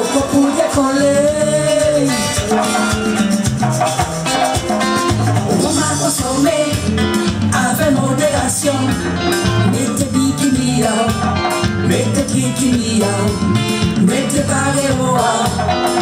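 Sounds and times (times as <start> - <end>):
backing music with guitar and bass: 0.0 - 16.0
woman singing into microphone: 5.6 - 16.0.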